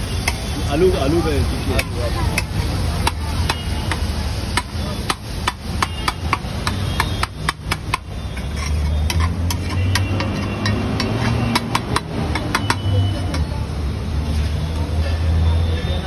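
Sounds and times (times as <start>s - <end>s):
metal spatula scraping iron griddle: 6.6s - 12.8s.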